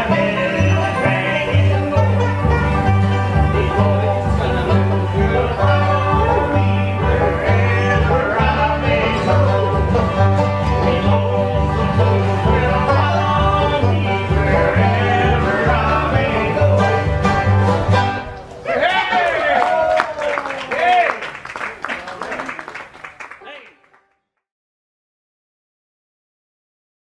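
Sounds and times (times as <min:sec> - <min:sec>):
fiddle: 0:00.0 - 0:18.5
upright bass: 0:00.0 - 0:18.5
plucked guitar: 0:00.0 - 0:18.6.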